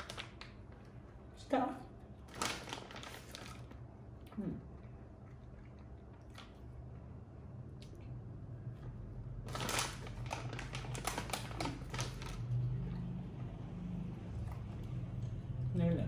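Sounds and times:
plastic candy wrapper crinkling: 0.0s - 0.9s, 2.2s - 3.8s, 9.4s - 12.6s
faint low hum: 0.0s - 16.0s.

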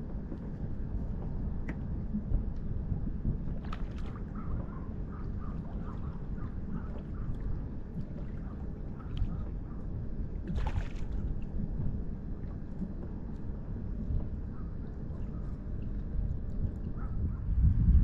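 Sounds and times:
wind rumbling on microphone: 0.0s - 18.0s
water lapping against kayak hull: 0.1s - 17.6s
splashing: 10.5s - 11.3s.

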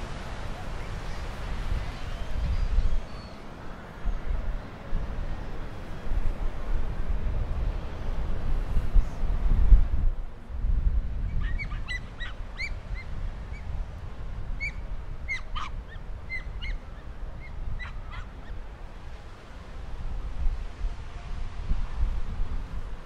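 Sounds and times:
wind rumbling on microphone: 0.0s - 23.0s
birds calling: 0.6s - 4.9s, 11.3s - 13.8s, 14.6s - 18.7s.

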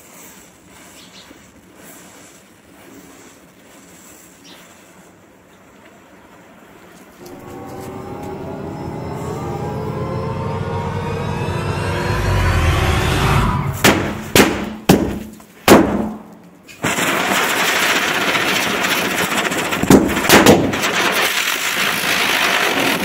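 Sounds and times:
firecracker bangs: 13.8s - 23.0s
ground spinner hissing sparks: 16.8s - 23.0s.

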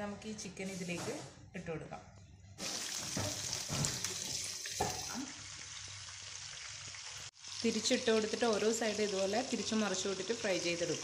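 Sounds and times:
chicken sizzling in hot oil: 2.6s - 11.0s.

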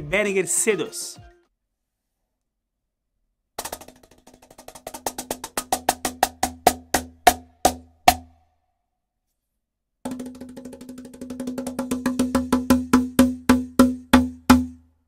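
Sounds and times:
lap cajon slaps: 3.6s - 8.3s.

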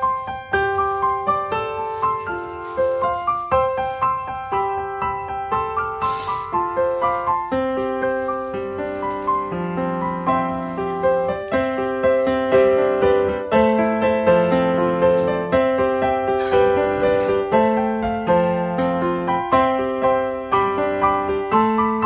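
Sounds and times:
slow piano music: 0.0s - 22.0s.

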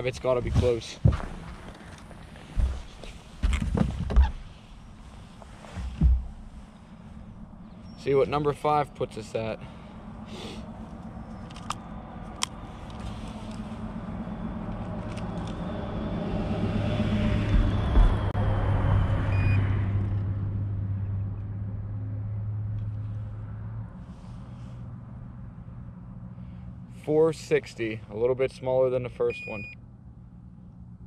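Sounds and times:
car driving past: 9.6s - 26.9s.

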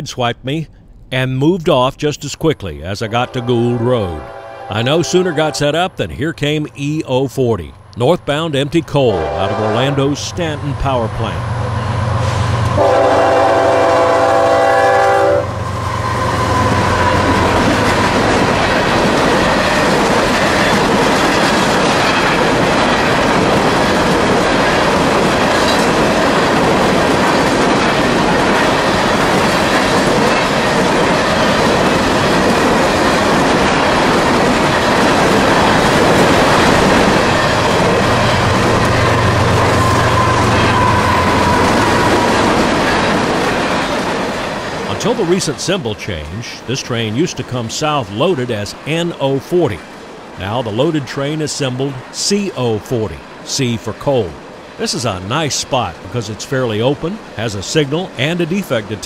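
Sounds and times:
diesel locomotive engine hum: 0.0s - 59.0s
locomotive horn: 3.1s - 5.9s, 9.1s - 10.4s, 12.2s - 17.8s, 37.2s - 42.6s
train wheels clattering on rail: 16.1s - 44.9s.

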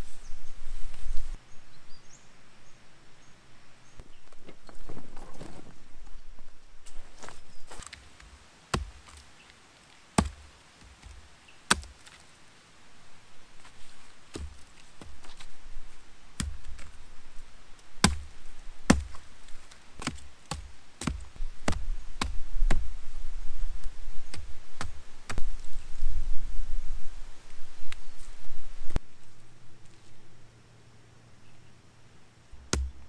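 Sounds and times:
axe chopping wood: 8.7s - 9.2s, 10.2s - 12.2s, 14.3s - 15.4s, 16.4s - 16.9s, 18.0s - 18.3s, 18.9s - 19.3s, 20.0s - 22.8s, 32.6s - 33.0s.

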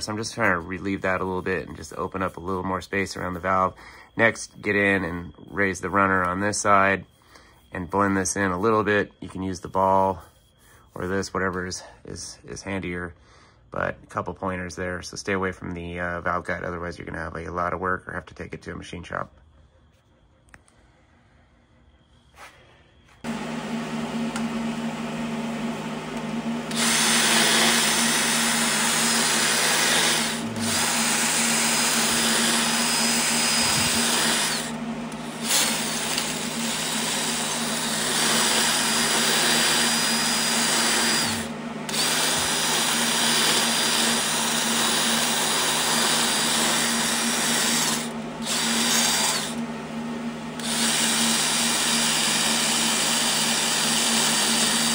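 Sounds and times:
burr grinding cast iron: 0.0s - 7.0s, 23.3s - 49.7s, 50.5s - 54.9s
die grinder motor running: 23.2s - 54.9s.

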